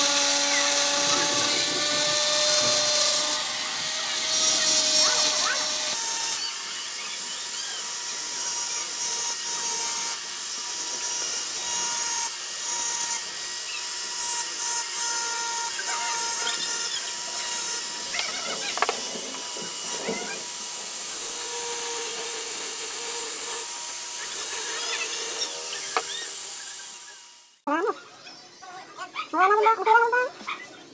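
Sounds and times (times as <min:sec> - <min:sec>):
rotary tool whining: 0:00.0 - 0:27.7
bit grinding glass: 0:13.6 - 0:27.2.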